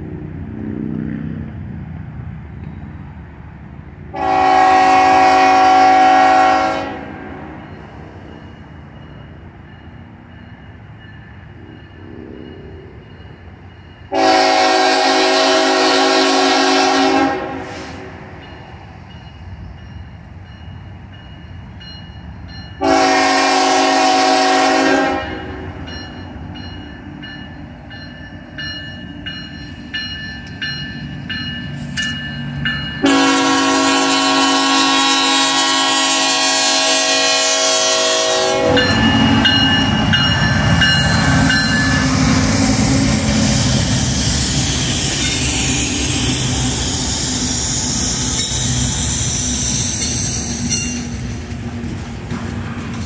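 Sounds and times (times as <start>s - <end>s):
train rumble and wheel rattle: 0.0s - 53.0s
locomotive air horn: 4.1s - 7.5s, 14.1s - 18.2s, 22.8s - 25.8s, 33.0s - 39.6s
crossing bell ringing: 7.5s - 14.2s, 18.3s - 23.2s, 25.2s - 33.8s, 38.3s - 42.5s, 44.8s - 46.9s.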